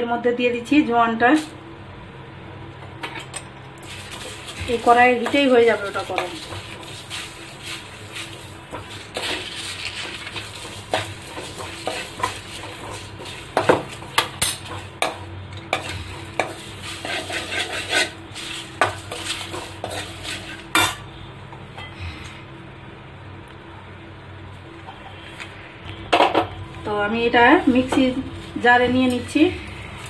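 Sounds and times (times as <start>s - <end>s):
metal ladle scraping spices in pan: 3.8s - 13.7s, 15.7s - 21.0s.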